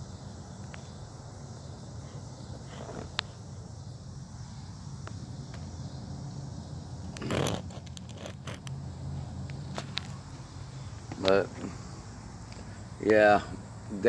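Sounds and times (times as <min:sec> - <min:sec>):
low outdoor rumble: 0:00.0 - 0:14.0
scrape on screen door: 0:07.1 - 0:08.6.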